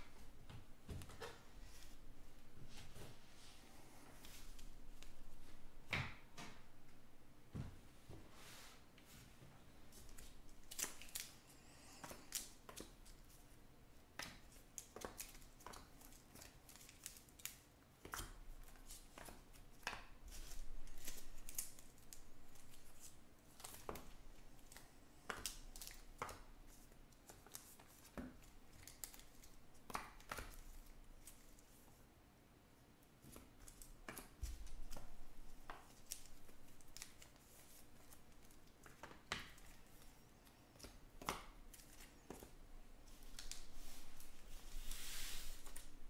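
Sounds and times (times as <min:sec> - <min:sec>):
cards rustling: 0:33.6 - 0:46.0.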